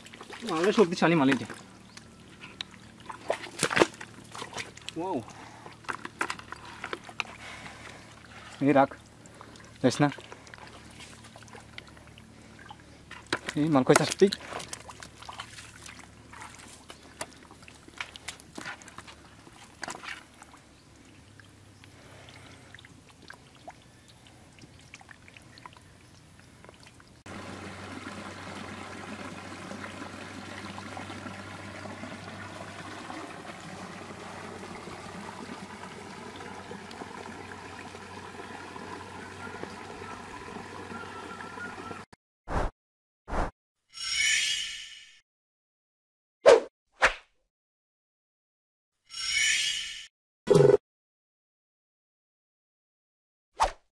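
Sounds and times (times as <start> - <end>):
eels squirming in muddy water: 0.0 - 27.2
water trickling into pool: 0.0 - 42.1.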